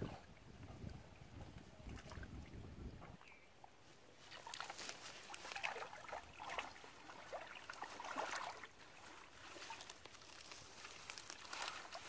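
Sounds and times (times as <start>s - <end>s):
shallow water sloshing and splashing: 4.1s - 12.0s
plants rustling: 4.2s - 5.9s, 7.6s - 12.0s.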